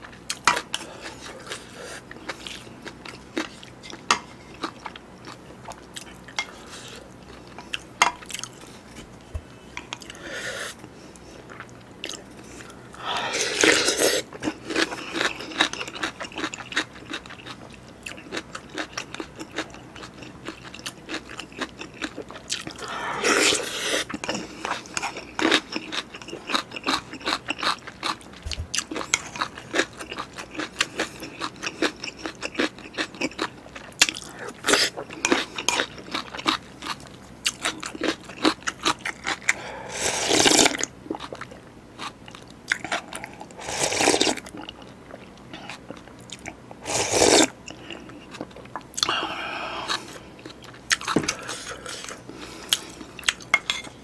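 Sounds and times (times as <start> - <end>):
wet chewing and crunching: 0.0 - 10.2, 13.6 - 54.0
slurping broth: 13.2 - 14.3, 39.9 - 40.8, 43.6 - 44.4, 46.8 - 47.6.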